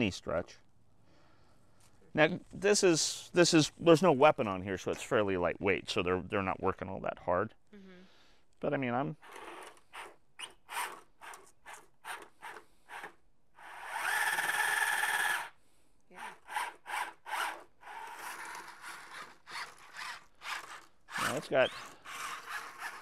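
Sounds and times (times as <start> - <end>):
robot motors whining: 12.5 - 15.5, 16.2 - 23.0
wheels scrubbing on concrete: 16.9 - 23.0.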